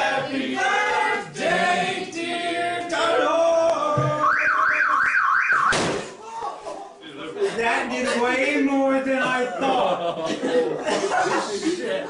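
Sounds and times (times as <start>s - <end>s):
group of people singing: 0.0s - 4.6s
electronic warbling alarm: 4.1s - 5.8s
sharp knock: 5.5s - 6.0s.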